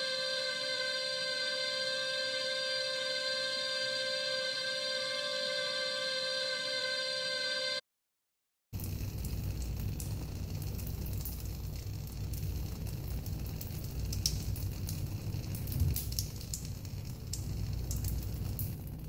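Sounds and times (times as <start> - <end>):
sparks crackling and fizzing: 8.8 - 19.0.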